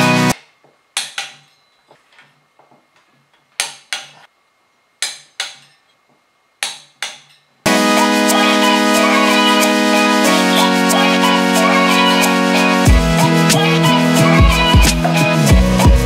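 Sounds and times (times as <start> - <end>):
background music: 0.0 - 0.4, 7.7 - 16.0
short sharp music notes: 7.7 - 16.0.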